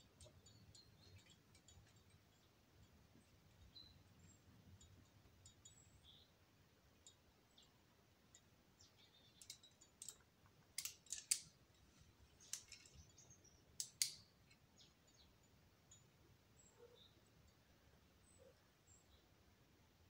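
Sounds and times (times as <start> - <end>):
climbing gear clinking: 0.0 - 2.5, 9.2 - 14.6.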